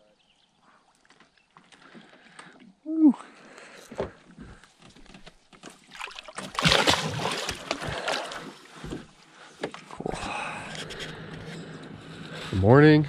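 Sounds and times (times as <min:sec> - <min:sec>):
water splashing and sloshing: 0:04.4 - 0:11.2.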